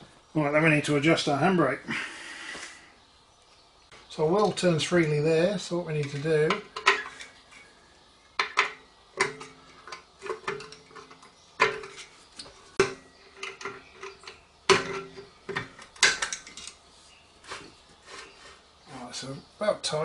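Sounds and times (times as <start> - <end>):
steel disc ringing: 8.4 - 12.1.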